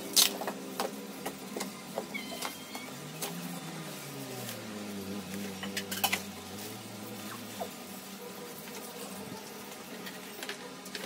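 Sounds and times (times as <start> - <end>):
low steady hum: 0.0 - 11.0
bubble wrap crackling: 2.8 - 10.0.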